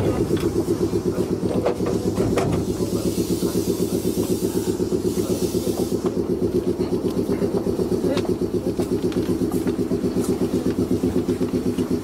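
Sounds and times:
air compressor chugging: 0.0 - 12.0
air hiss: 2.6 - 6.2.

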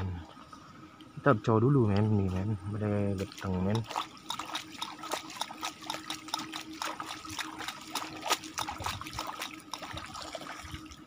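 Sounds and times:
water splashing and trickling: 2.2 - 11.0.

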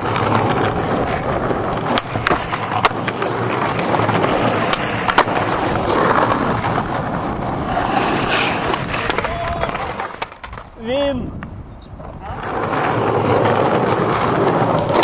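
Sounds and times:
skateboard clacks: 0.0 - 15.0
skateboard wheels rolling on asphalt: 0.0 - 15.0.

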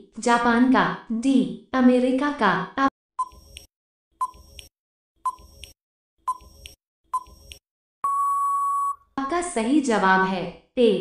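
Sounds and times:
short electronic beeps: 8.0 - 9.0.

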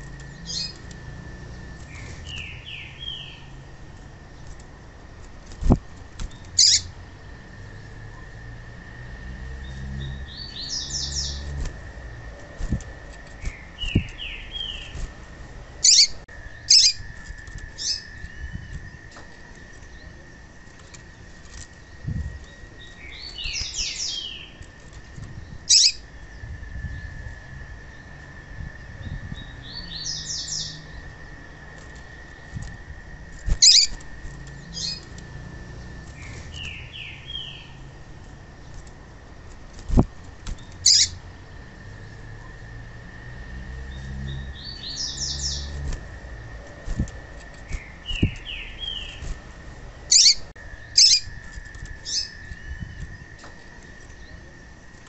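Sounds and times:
bird chirping: 0.0 - 3.7, 6.3 - 7.9, 9.5 - 11.7, 12.3 - 15.0, 15.8 - 20.5, 21.7 - 24.6, 25.4 - 27.1, 29.0 - 31.3, 33.5 - 37.9, 40.6 - 42.3, 43.8 - 55.0.

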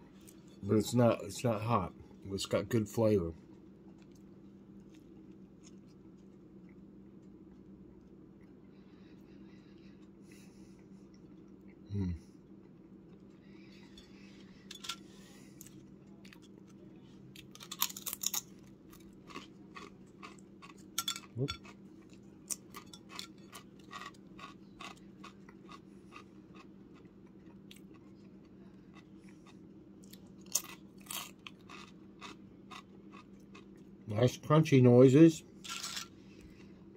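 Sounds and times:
chewing crunchy potato chips: 14.7 - 34.0, 35.6 - 36.9.

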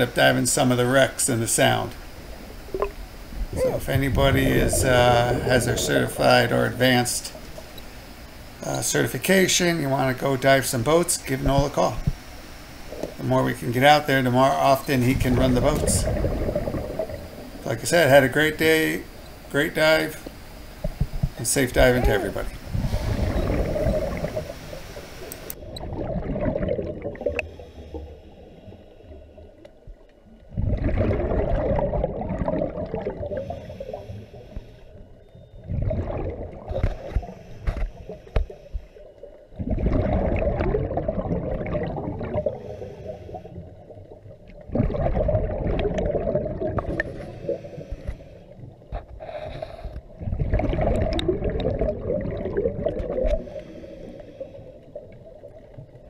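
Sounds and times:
exhaled bubbles gurgling: 0.8 - 19.2, 20.8 - 28.2, 30.4 - 34.4, 35.5 - 37.4, 39.2 - 48.9, 49.9 - 56.0
diver breathing through regulator: 22.0 - 24.6, 27.4 - 29.5, 33.3 - 35.0, 42.4 - 43.7, 46.9 - 50.1, 53.2 - 55.0.

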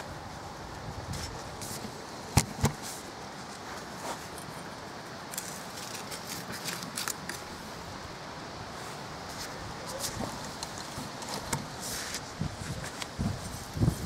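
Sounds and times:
dry grass crackling and rustling: 0.0 - 8.1.

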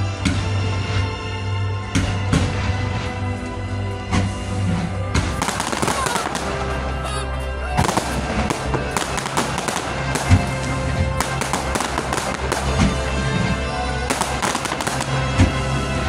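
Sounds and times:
loud show music: 0.0 - 16.0
fireworks bangs and crackles: 1.8 - 3.1, 4.1 - 7.0, 7.7 - 16.0.

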